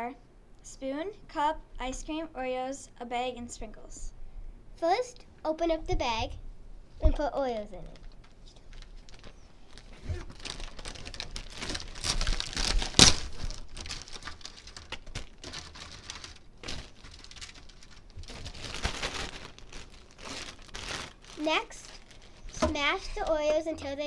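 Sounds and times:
plastic crinkling and rustling: 7.7 - 24.0
sharp plastic crackle: 7.8 - 23.6.

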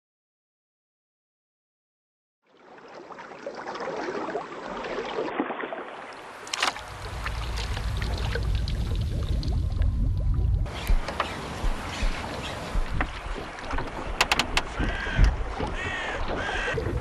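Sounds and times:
water lapping around boat: 2.5 - 17.0
low rumble: 6.8 - 13.4.

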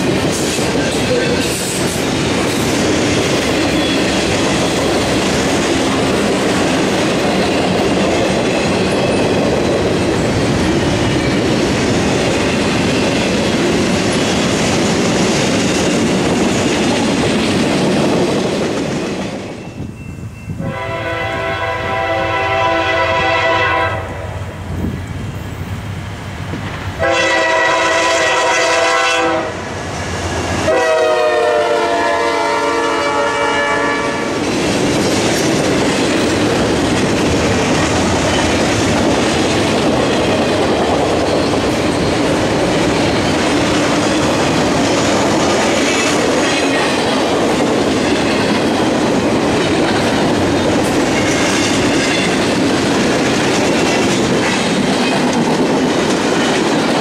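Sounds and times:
locomotive air horn: 20.6 - 24.3, 27.0 - 29.6, 30.7 - 34.3
freight cars clattering on rails: 34.4 - 57.0.

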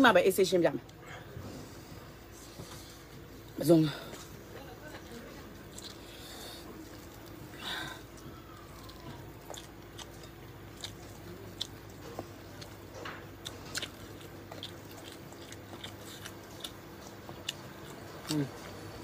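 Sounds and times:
faint steady hum: 0.0 - 19.0
person chewing: 5.6 - 19.0.

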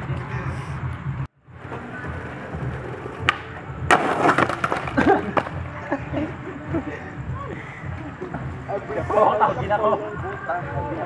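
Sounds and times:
skateboard wheels rolling on concrete: 0.0 - 11.0
skateboard crash on pavement: 1.7 - 5.8
skateboard click: 3.1 - 5.6.

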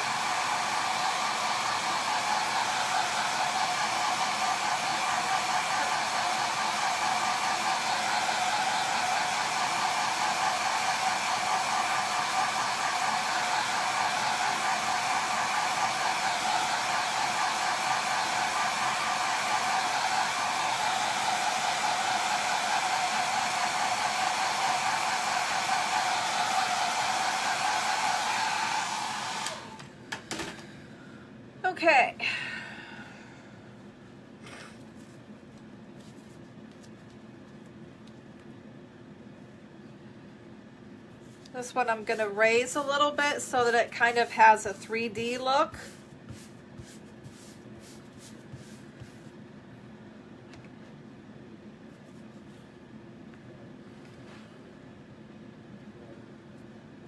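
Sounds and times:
hair dryer running: 0.0 - 30.7, 41.4 - 49.2.

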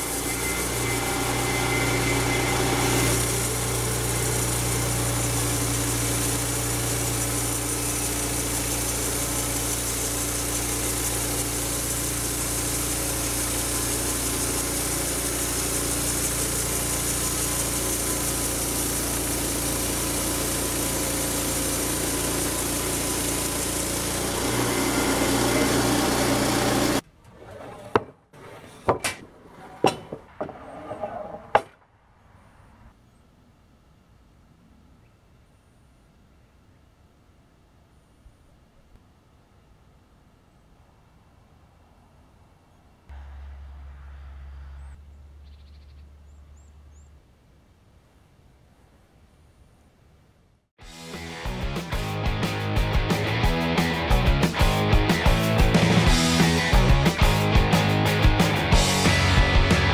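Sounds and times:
low motor hum: 0.0 - 27.7, 43.1 - 47.4
band saw cutting log: 0.0 - 31.8, 50.8 - 59.9.

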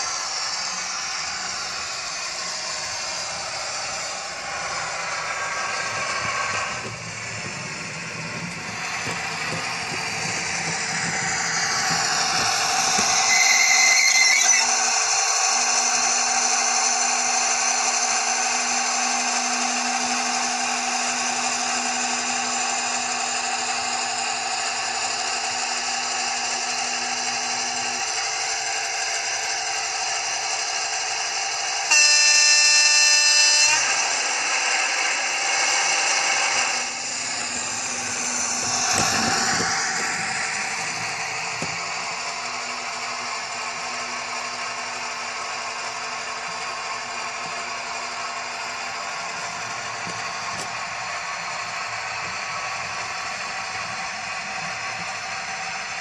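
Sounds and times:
diesel engine drone: 0.0 - 56.0
locomotive horn blast: 31.9 - 33.8.

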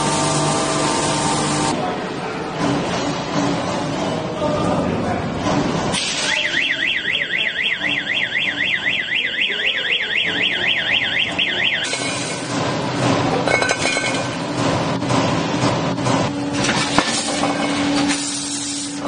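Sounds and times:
machinery clattering: 2.4 - 6.4, 10.9 - 19.0.

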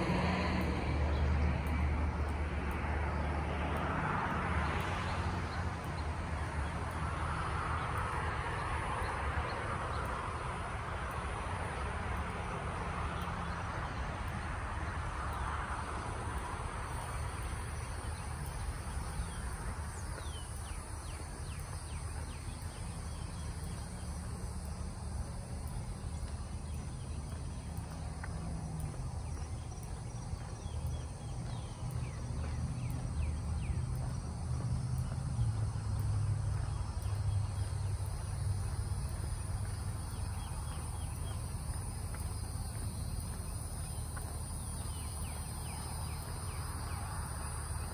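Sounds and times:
insect drone: 0.0 - 47.9.

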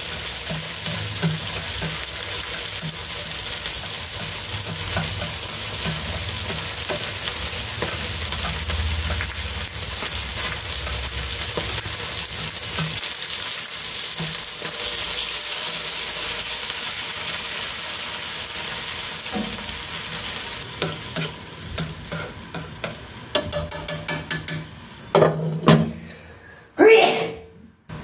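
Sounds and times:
meat sizzling in oil: 0.0 - 25.2
taps and clicks in pan: 20.8 - 25.3.

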